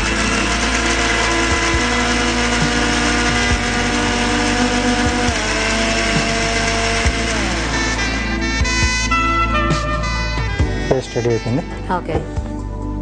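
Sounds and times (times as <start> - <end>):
mixer grinder motor whine: 0.0 - 11.5.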